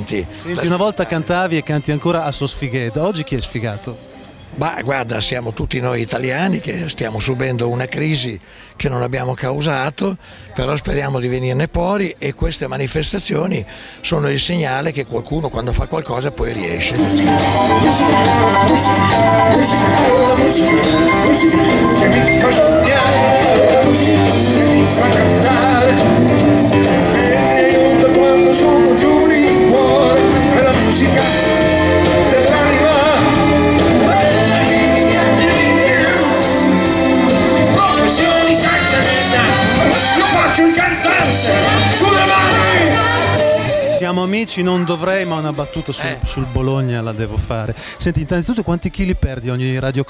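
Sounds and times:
keyboards: 0:00.0 - 0:50.0
bass: 0:15.3 - 0:44.1
drums: 0:16.8 - 0:44.0
man singing: 0:16.8 - 0:46.6
electric guitars: 0:16.9 - 0:44.0.

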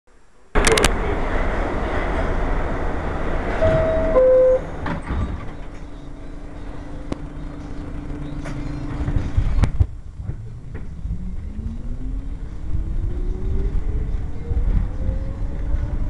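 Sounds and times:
train hum: 0:00.6 - 0:16.0
two-note door chime: 0:03.6 - 0:04.7
doors closing knocks: 0:03.6 - 0:05.3.

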